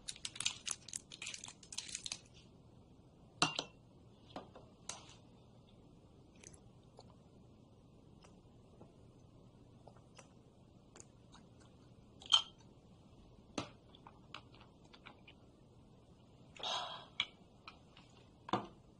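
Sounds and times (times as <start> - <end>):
hard candy crunching in mouth: 0.0 - 2.3.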